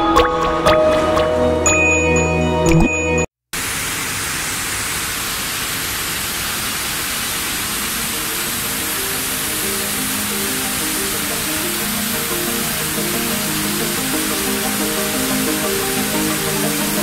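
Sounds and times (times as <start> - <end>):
intro music: 8.1 - 17.0.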